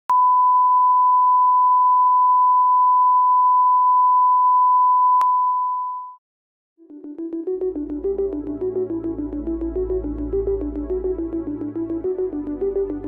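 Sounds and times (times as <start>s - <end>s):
steady test tone beep: 0.1s - 6.2s.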